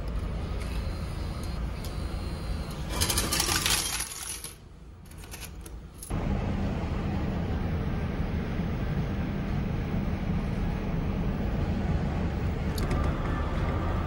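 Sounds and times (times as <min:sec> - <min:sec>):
coins clattering into tray: 0:02.9 - 0:05.6
coins clinking: 0:02.9 - 0:06.1.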